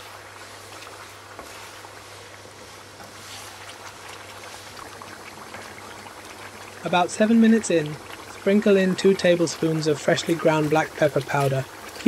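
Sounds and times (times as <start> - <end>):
chicken sizzling in oil: 0.0 - 12.0.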